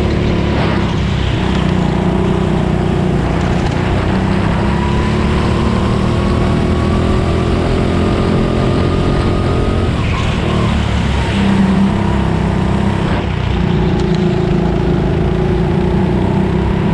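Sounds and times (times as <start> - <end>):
go-kart engine: 0.0 - 16.9.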